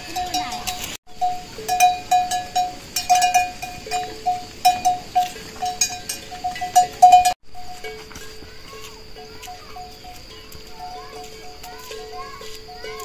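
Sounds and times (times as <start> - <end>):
lower-pitched bell ringing: 0.0 - 8.5
livestock bells clanking: 0.0 - 13.0.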